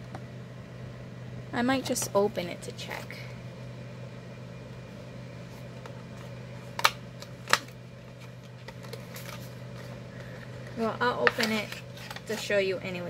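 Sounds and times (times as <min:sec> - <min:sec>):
steady low hum: 0:00.0 - 0:13.0
packaging being handled: 0:05.8 - 0:12.5.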